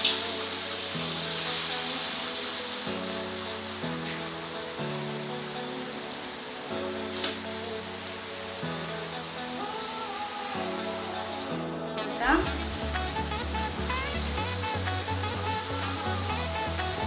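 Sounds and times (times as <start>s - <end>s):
deep-frying sizzle in hot oil: 0.0s - 11.4s
background music chords: 0.0s - 17.0s.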